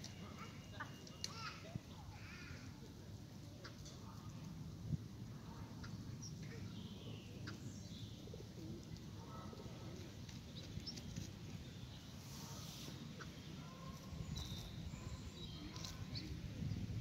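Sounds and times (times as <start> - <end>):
birds chirping: 0.0 - 2.6, 10.3 - 16.4.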